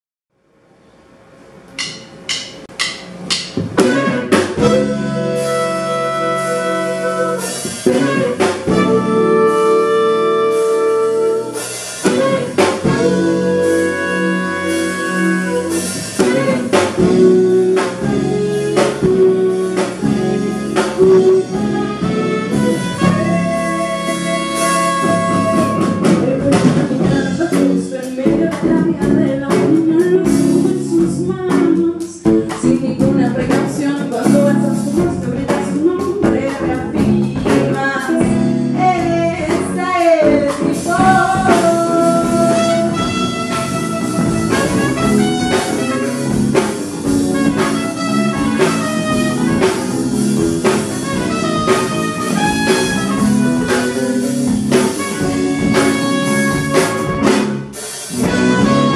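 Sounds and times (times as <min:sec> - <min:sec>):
electric bass: 0:01.4 - 0:58.9
drum kit steady beat: 0:01.7 - 0:58.9
electric guitar: 0:03.6 - 0:58.9
woman singing: 0:06.4 - 0:43.4.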